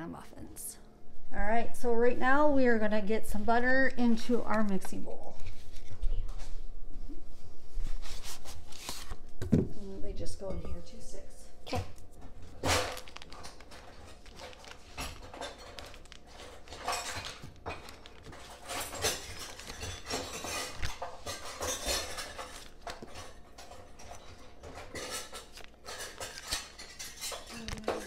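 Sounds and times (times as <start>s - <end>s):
paper wrappers rustling: 12.5s - 28.0s.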